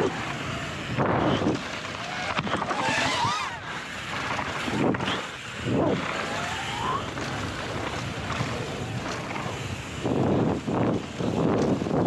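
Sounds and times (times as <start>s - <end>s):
rushing wind: 0.0s - 12.0s.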